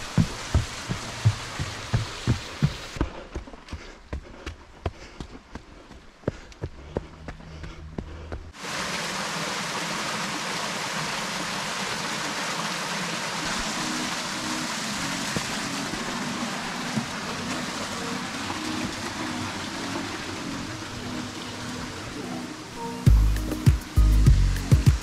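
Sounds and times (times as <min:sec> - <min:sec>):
creek water rushing: 0:00.0 - 0:03.0, 0:08.6 - 0:25.0.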